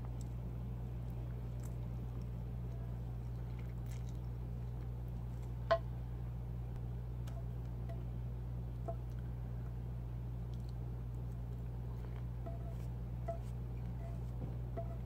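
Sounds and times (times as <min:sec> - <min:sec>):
steady low hum: 0:00.0 - 0:15.0
person chewing: 0:01.0 - 0:05.6.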